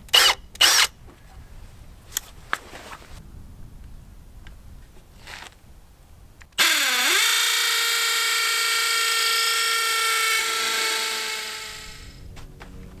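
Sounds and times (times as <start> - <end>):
cordless drill motor whining: 6.6 - 12.2.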